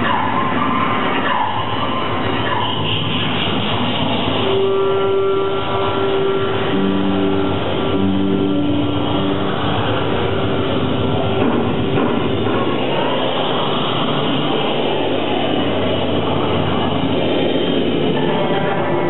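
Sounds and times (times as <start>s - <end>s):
electric guitar noise drone: 0.0s - 19.0s
lower held tones: 3.2s - 19.0s
held tone: 4.4s - 13.4s.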